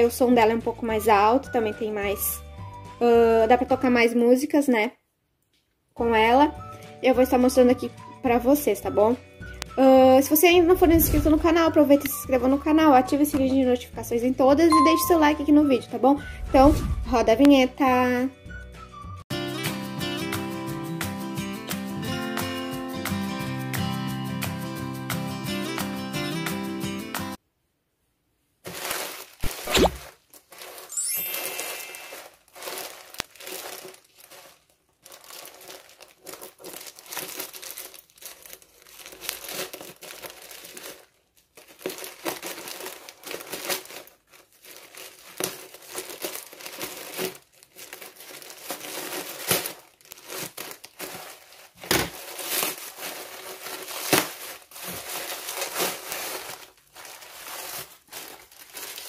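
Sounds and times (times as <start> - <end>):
bubble wrap crinkling: 28.6 - 59.0
plastic mailer bag crinkling: 28.6 - 59.0
scissors cutting plastic: 28.7 - 34.6, 35.4 - 59.0.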